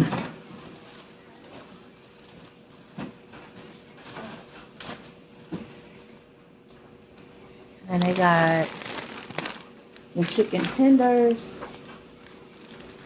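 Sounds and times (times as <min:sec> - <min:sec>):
faint steady hum: 0:00.0 - 0:13.0
plastic rustling: 0:00.4 - 0:05.0, 0:07.8 - 0:13.0
packages knocking on wire shelves: 0:10.2 - 0:11.8.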